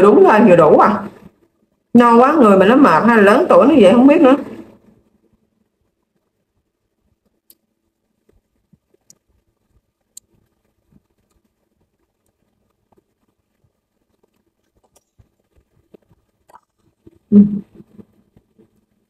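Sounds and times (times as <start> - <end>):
soft chewing: 7.1 - 18.8.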